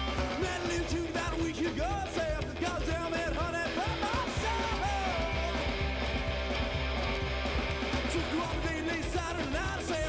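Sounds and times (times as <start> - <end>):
person singing: 0.0 - 5.7, 8.0 - 10.0
drum beat: 0.0 - 10.0
electric guitar: 0.0 - 10.0
rock and roll song: 0.0 - 10.0.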